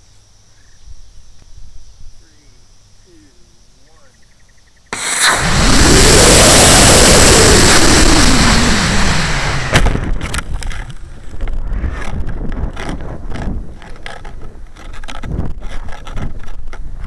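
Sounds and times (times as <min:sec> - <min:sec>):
rocket motor hissing: 0:04.9 - 0:11.0
crackles and thumps: 0:05.0 - 0:17.0
wind buffeting a camera: 0:05.0 - 0:17.0.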